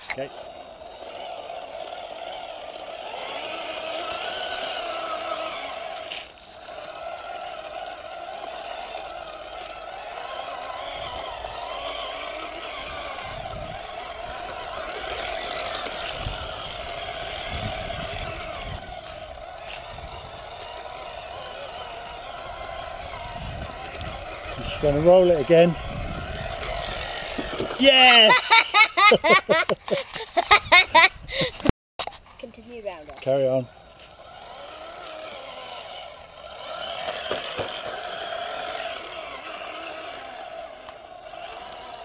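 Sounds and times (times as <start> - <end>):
rc car drive whirring: 0.0 - 42.0.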